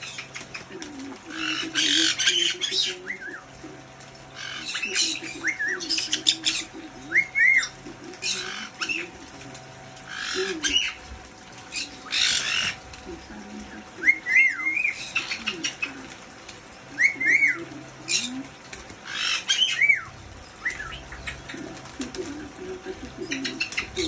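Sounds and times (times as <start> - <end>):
fountain pump hum: 0.0 - 24.0
parrot splashing and flapping wings: 0.0 - 24.0.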